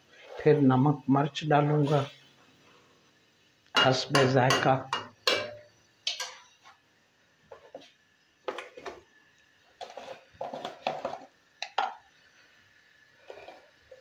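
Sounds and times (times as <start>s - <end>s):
kitchen utensils clinking: 3.8s - 6.6s.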